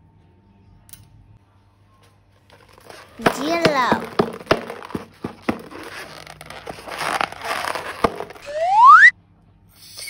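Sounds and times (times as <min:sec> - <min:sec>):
crinkling slime balloons: 0:02.6 - 0:08.5
rising squeal: 0:08.4 - 0:09.1.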